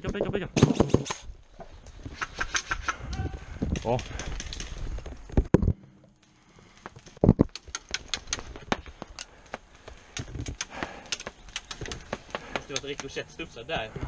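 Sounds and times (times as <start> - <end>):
pellets striking wooden walls: 6.8 - 13.2.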